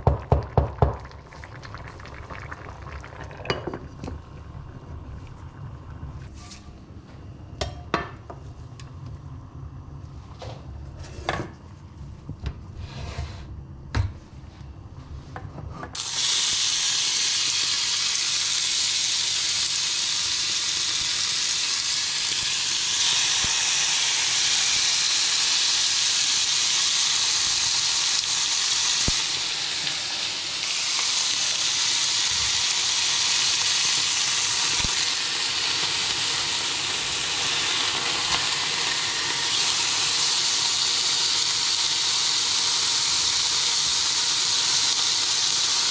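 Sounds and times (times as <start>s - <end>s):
meat sizzling in a frying pan: 16.0s - 45.9s.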